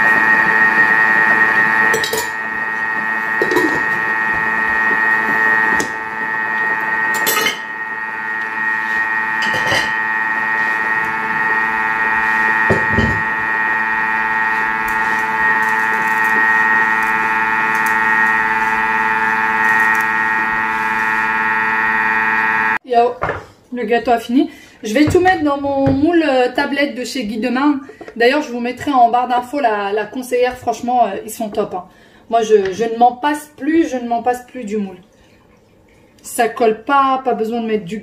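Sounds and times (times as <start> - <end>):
food processor motor whine: 0.0 - 22.8.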